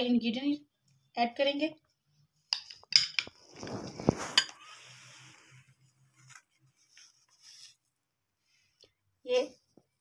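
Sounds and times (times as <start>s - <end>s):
glass bowl and spoons clinking: 2.6s - 3.4s
scraping rustle: 3.4s - 7.9s.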